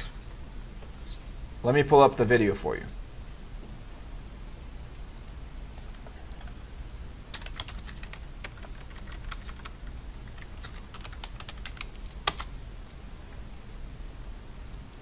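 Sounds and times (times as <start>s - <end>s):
computer keyboard typing: 5.8s - 6.6s, 7.3s - 12.5s.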